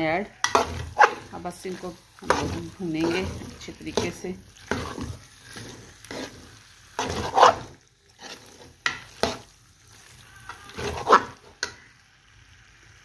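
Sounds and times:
food sizzling: 0.0s - 13.0s
metal ladle scraping frying pan: 0.4s - 11.6s.

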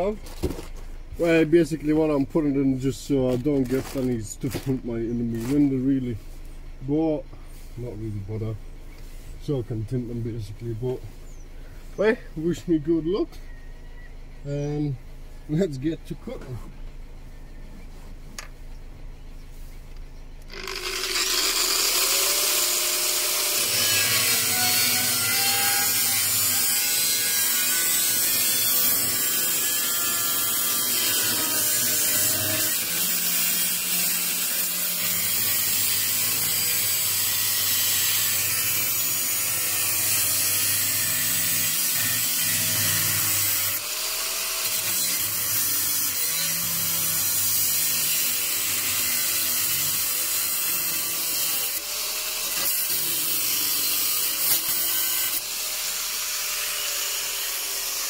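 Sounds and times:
angle grinder cutting steel: 20.5s - 58.0s.

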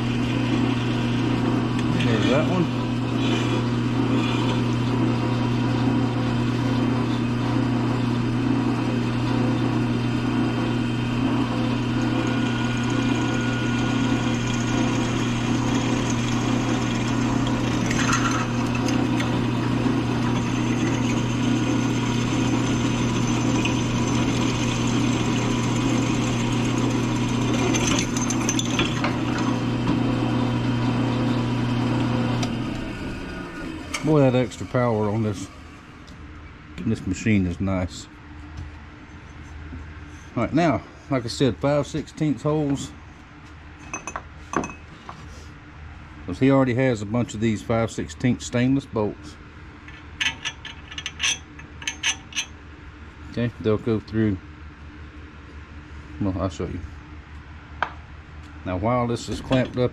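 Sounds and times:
drill press motor running: 0.0s - 36.9s
drill bit scraping metal: 0.3s - 4.7s, 11.0s - 29.9s.

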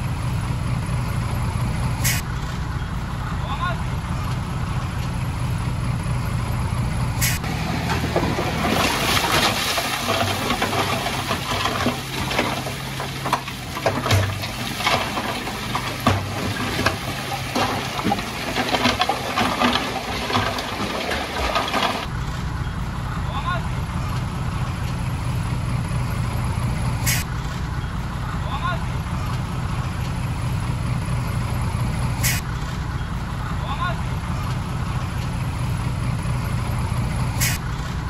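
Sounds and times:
diesel truck engine running: 0.0s - 38.0s
rock and dirt tumbling out: 7.4s - 22.1s.

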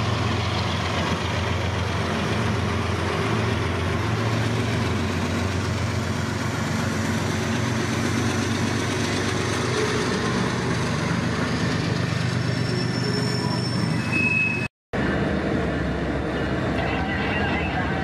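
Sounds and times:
diesel locomotives running: 0.0s - 18.0s
freight cars rolling on rails: 0.0s - 18.0s
high squeal: 12.3s - 14.7s.

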